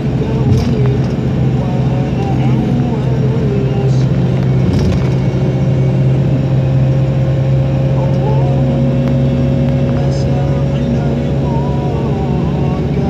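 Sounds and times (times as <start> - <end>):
engine and road drone: 0.0 - 13.0
held tone: 0.5 - 7.1.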